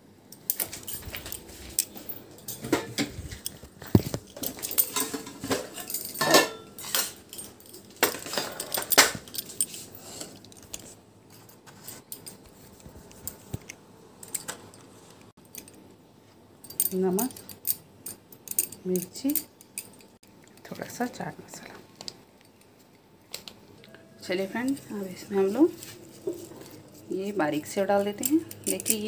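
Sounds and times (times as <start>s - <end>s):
spoon and dishes clinking: 0.4s - 10.4s, 28.0s - 29.0s.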